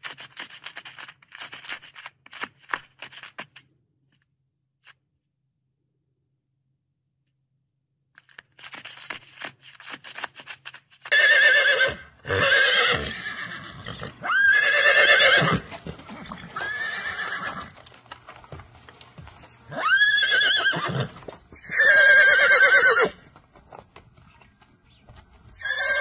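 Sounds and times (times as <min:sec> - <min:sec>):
horse whinnying: 0:11.1 - 0:17.8, 0:19.7 - 0:23.2, 0:25.6 - 0:26.0.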